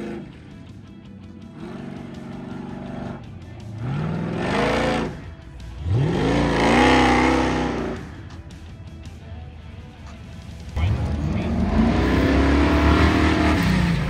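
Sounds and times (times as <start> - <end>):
pickup engine revving hard: 10.9 - 14.0.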